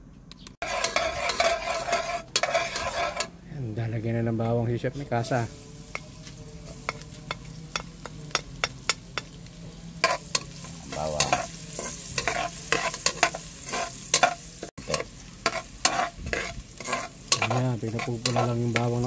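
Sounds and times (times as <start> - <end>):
garlic sizzling in hot oil: 0.6 - 3.4, 5.1 - 19.0
metal spatula scraping a pot: 0.6 - 3.4, 10.0 - 19.0.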